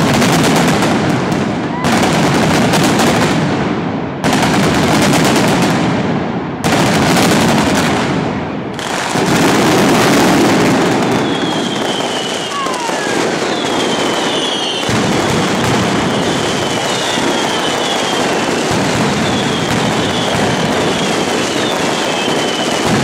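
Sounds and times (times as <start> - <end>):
firecracker bangs and crackles: 0.0 - 23.0
falling firework whistles: 8.8 - 23.0.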